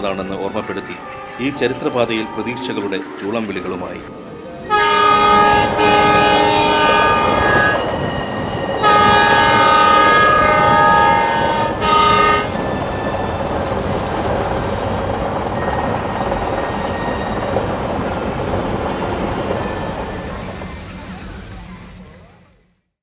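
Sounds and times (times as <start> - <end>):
train wheels rumbling on rails: 0.0 - 22.8
train horn blasts: 4.6 - 13.4.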